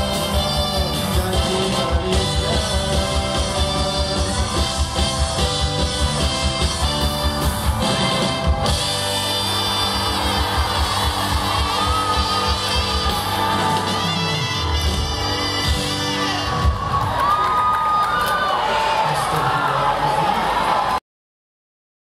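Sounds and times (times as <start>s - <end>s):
drum kit beat: 0.0s - 17.2s
electric guitar: 0.0s - 17.7s
live rock band with orchestra: 0.0s - 19.3s.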